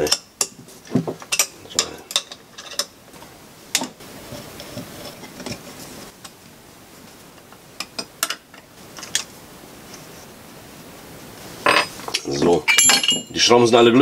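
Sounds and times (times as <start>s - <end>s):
metal parts clinking: 1.3s - 3.0s, 11.7s - 13.5s.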